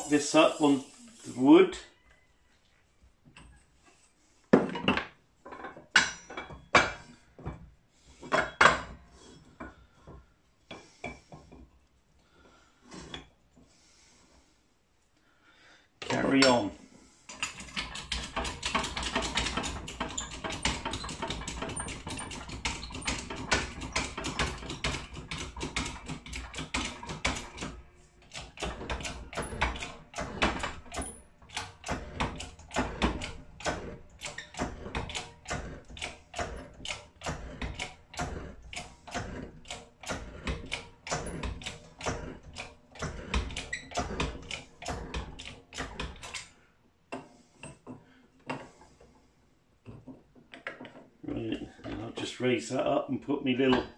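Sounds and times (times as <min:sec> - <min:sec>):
broach clicking and scraping metal: 0:16.1 - 0:52.2.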